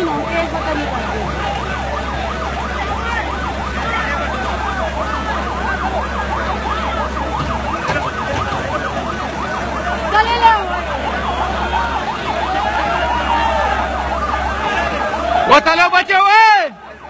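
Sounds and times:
large crowd noise: 0.0s - 17.0s
siren yelping: 0.0s - 17.0s.

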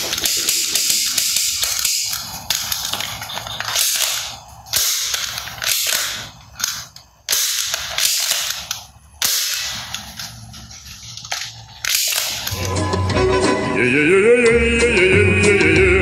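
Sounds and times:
toy gun bangs: 0.0s - 10.3s, 11.8s - 12.6s.

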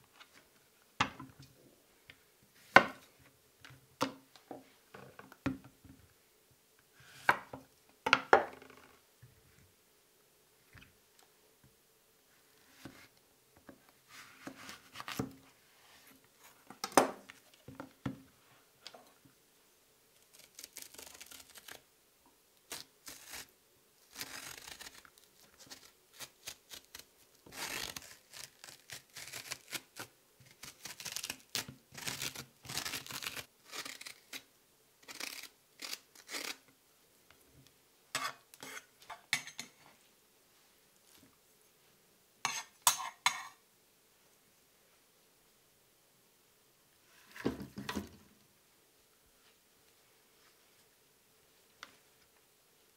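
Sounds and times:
metal spoon scraping zucchini: 38.2s - 39.7s, 42.4s - 43.6s.

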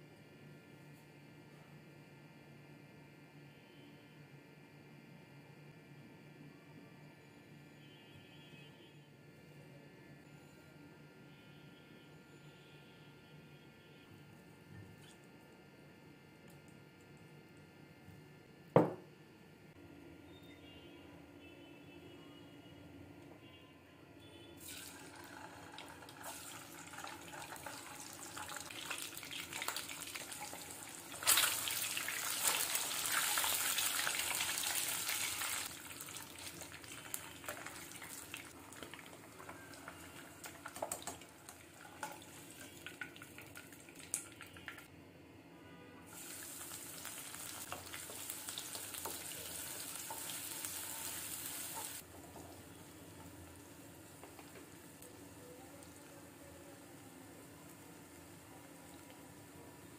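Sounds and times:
hot oil sizzling in a pan: 24.6s - 44.3s, 46.1s - 55.9s.

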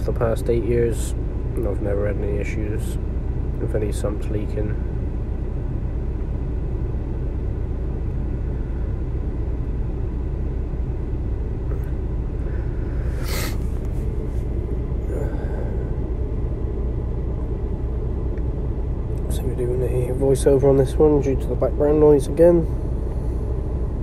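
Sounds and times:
workshop low rumble: 0.0s - 24.0s
sharp hiss or scrape: 13.2s - 13.7s.

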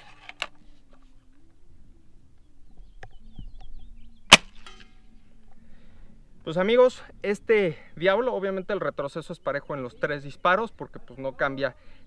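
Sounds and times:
air rifle firing crack: 4.3s - 4.8s.

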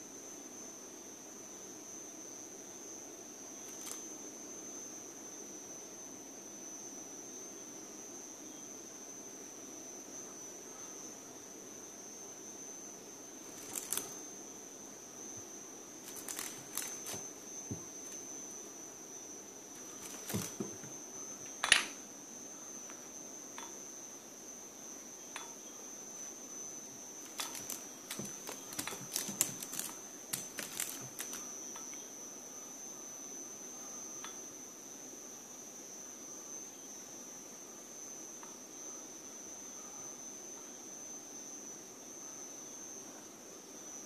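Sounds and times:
steady high-pitched whine: 0.0s - 44.0s
cat claws tapping on wood: 27.3s - 31.4s.

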